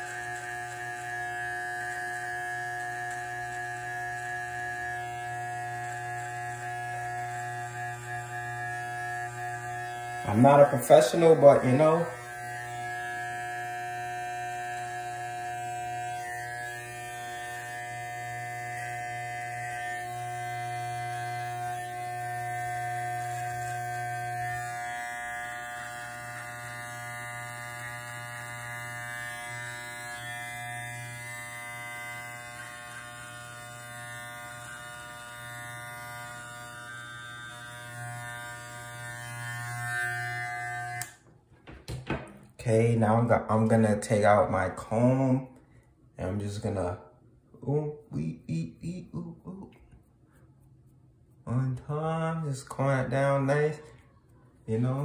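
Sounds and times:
hair clipper buzzing: 0.0 - 42.6.

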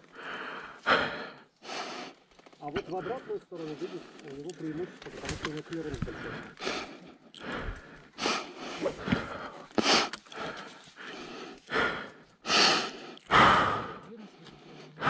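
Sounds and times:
person breathing heavily: 0.0 - 2.2, 2.8 - 15.0.

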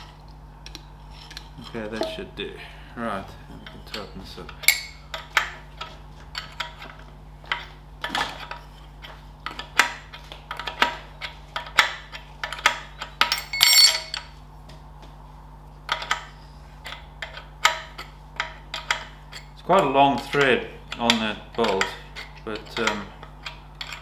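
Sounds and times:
metallic rattle: 4.6 - 5.0, 13.2 - 14.3
spanner clinking on metal bolt: 4.6 - 5.0, 12.6 - 14.3.

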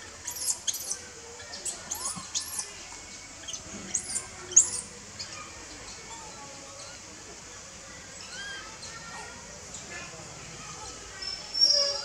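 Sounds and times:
baby macaque screaming: 0.2 - 1.0, 1.6 - 2.7, 8.2 - 8.6.

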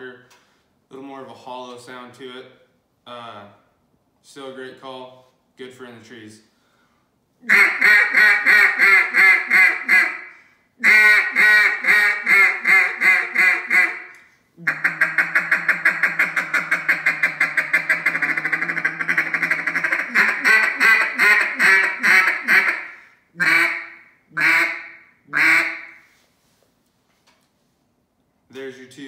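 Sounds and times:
duck call quacking: 7.4 - 26.1.

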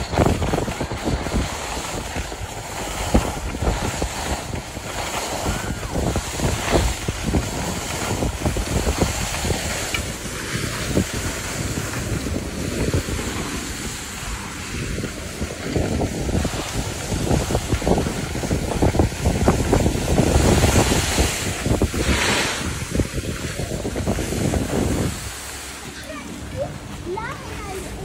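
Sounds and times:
skis sliding on snow: 0.0 - 28.0
wind buffeting microphone: 0.0 - 28.0.

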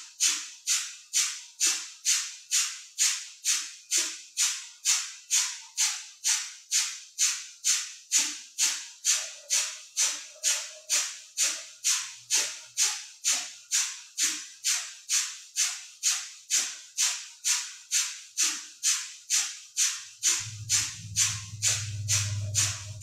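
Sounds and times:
low steady hum: 20.3 - 23.0.

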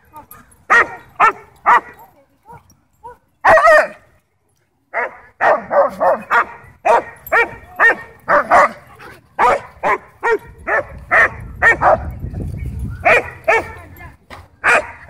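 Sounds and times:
dogs barking: 0.7 - 4.0, 5.0 - 12.2, 12.9 - 13.8, 14.6 - 15.0.

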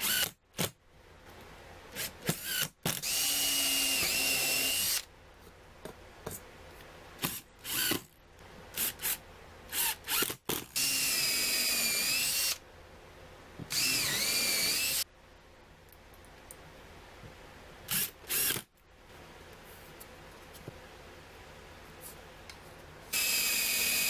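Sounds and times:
cordless drill motor whine: 2.5 - 5.1, 10.8 - 12.6, 13.7 - 15.0, 17.9 - 18.6, 23.1 - 24.0
drill trigger blips: 13.7 - 15.0, 23.2 - 24.0.

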